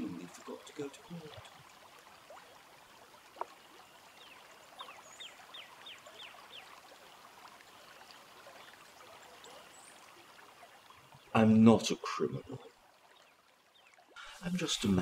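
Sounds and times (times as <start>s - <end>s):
running water hiss: 14.1s - 15.0s.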